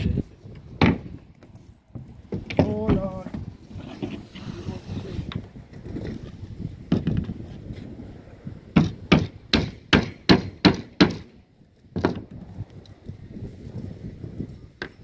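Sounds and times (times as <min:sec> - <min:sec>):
hammer driving nails into plywood: 0:08.8 - 0:11.4.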